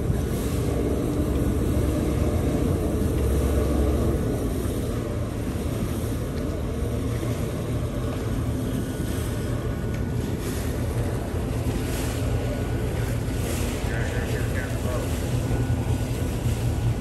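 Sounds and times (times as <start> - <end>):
boat engines idling: 0.0 - 17.0.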